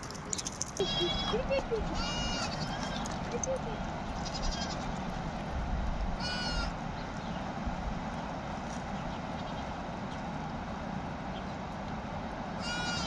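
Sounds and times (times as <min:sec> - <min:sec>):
low background noise: 0:00.0 - 0:13.0
goat bleating: 0:00.8 - 0:03.4, 0:04.2 - 0:04.8, 0:06.2 - 0:06.7, 0:12.6 - 0:13.0.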